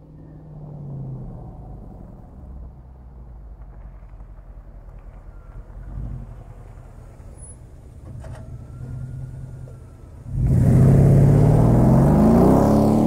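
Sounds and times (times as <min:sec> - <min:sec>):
engine accelerating hard: 0:10.2 - 0:13.0.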